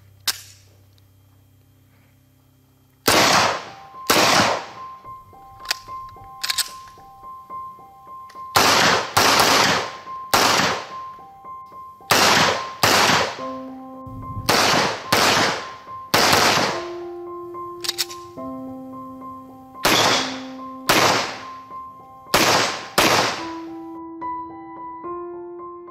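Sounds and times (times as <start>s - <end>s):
pistol shots echoing: 3.0s - 4.9s, 8.5s - 11.1s, 12.1s - 13.5s, 14.4s - 17.0s, 19.8s - 21.6s, 22.3s - 23.7s
background music: 3.0s - 25.9s.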